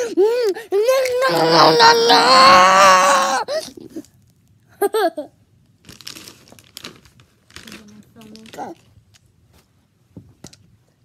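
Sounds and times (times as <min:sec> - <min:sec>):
girl's high-pitched squeal: 0:00.8 - 0:03.6.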